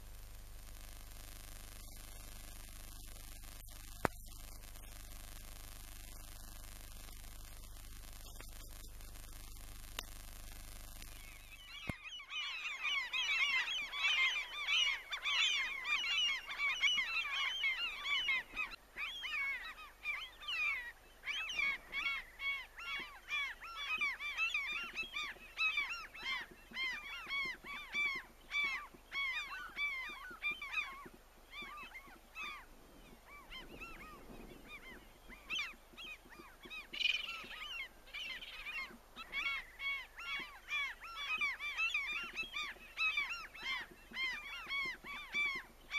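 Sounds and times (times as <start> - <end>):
flock of birds calling: 11.0 - 45.9.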